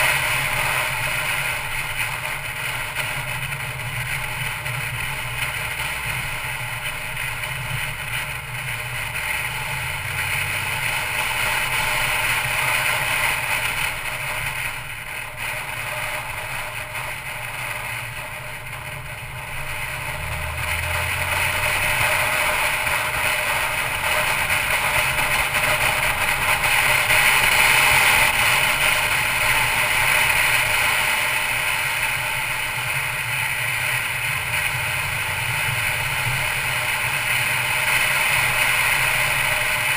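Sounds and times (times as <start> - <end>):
low engine hum: 0.0 - 39.9
road and tyre noise: 0.0 - 39.9.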